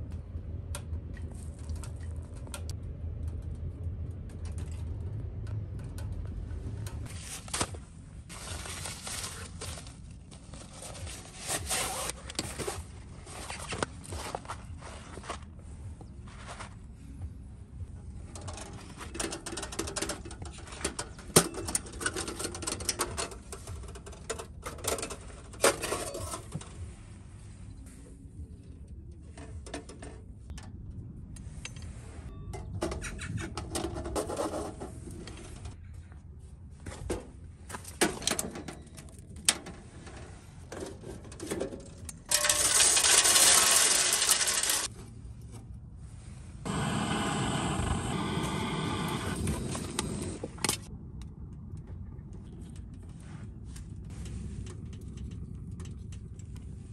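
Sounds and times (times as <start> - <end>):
metal clanking and rattling: 18.2 - 26.8, 37.9 - 44.9
butane torch rushing: 46.6 - 50.8
loud rushing hiss: 46.7 - 50.4.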